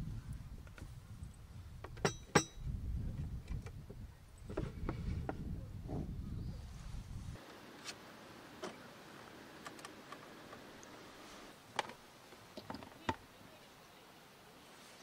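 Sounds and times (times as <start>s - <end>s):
faint steady hiss: 6.6s - 15.0s.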